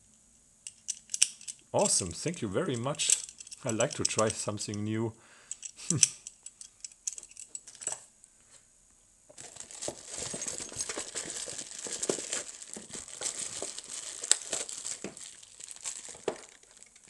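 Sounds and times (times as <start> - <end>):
packaging crinkling: 9.3 - 17.0.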